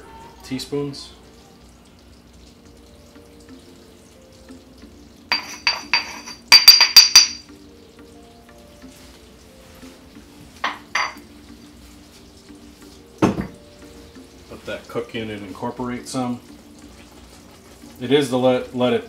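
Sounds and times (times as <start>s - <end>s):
syrup bubbling: 0.4s - 19.0s
stone mortar knocking: 5.3s - 7.4s.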